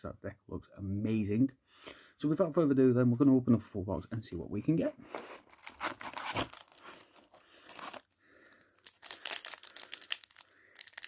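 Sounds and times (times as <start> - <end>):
foil wrapper crinkling and tearing: 5.4 - 11.0.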